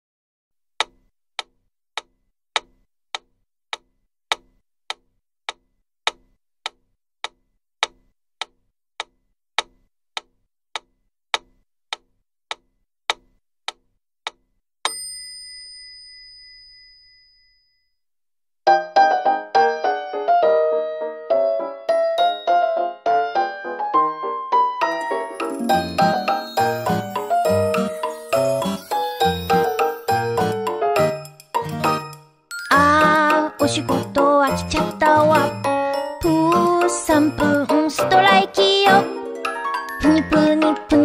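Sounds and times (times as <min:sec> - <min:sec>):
piano music: 0:18.8 - 0:32.2, 0:32.8 - 0:41.0.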